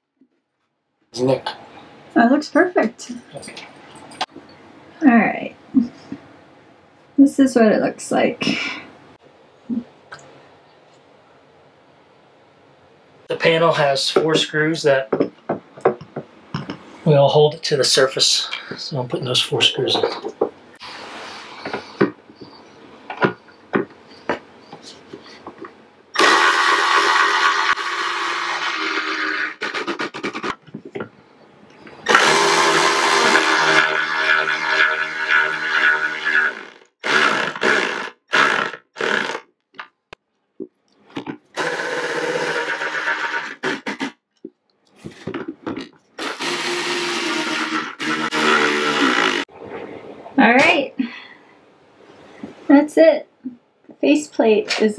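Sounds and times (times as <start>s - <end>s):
cordless drill motor whine: 26.2s - 29.7s, 32.0s - 39.4s, 41.6s - 44.1s, 46.2s - 49.5s.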